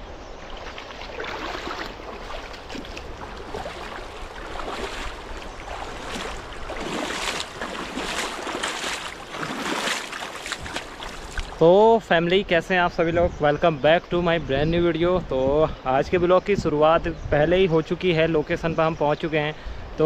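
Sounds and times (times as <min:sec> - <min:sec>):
flowing water rushing: 0:00.0 - 0:11.8
bare feet splashing in river: 0:00.4 - 0:11.6.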